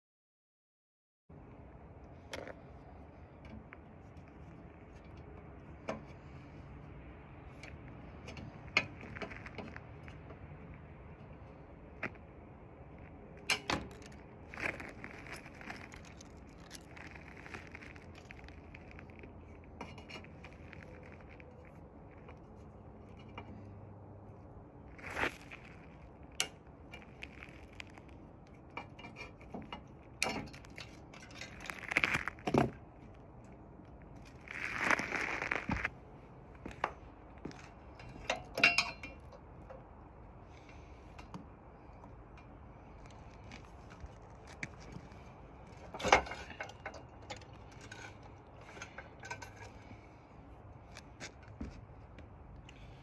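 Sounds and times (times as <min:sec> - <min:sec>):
metal tools clinking: 0:37.8 - 0:39.4, 0:45.9 - 0:50.0
metallic tool clinks and knocks: 0:38.0 - 0:39.4.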